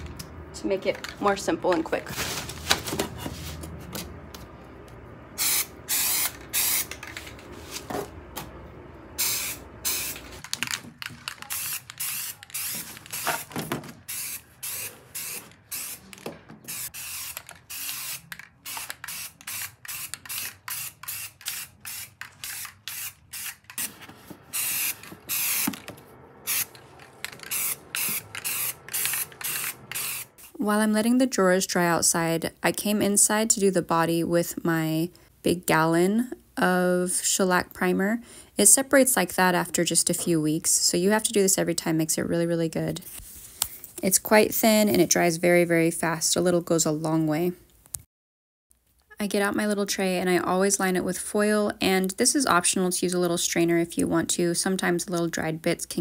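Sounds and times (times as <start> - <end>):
aerosol can spraying: 5.4 - 7.0, 9.2 - 10.3, 11.4 - 13.5, 14.1 - 16.1, 16.7 - 25.8, 26.5 - 30.6.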